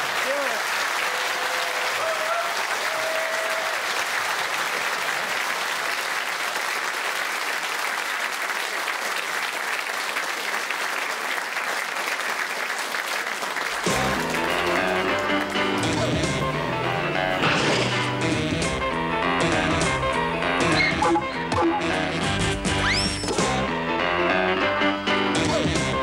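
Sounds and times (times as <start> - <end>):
audience applauding: 0.0 - 17.4
closing theme music: 13.8 - 26.0.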